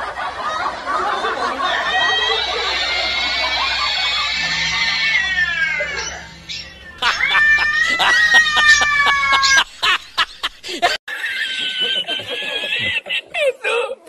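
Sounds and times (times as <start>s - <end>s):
cat calling: 3.4s - 9.7s.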